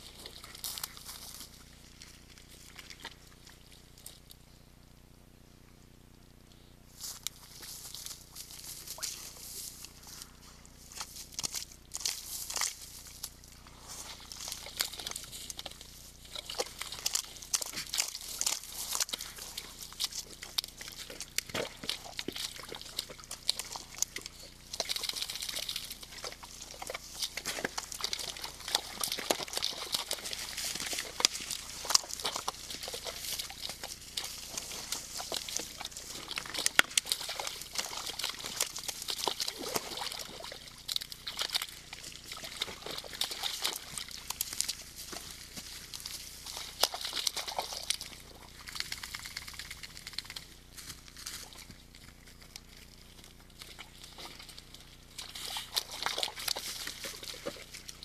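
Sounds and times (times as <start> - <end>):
mud squelching under hooves: 0.0 - 58.0
clicks crunches and knocks: 16.4 - 39.9.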